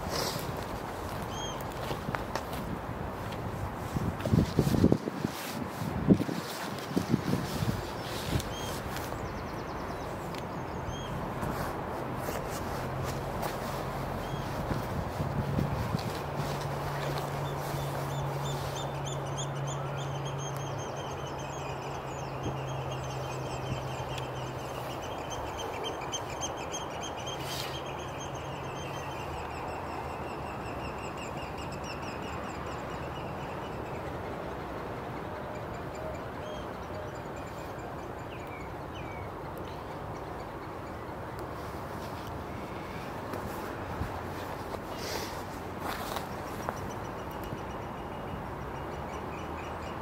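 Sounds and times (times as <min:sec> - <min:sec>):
birds piping shrill calls: 0:01.2 - 0:01.7.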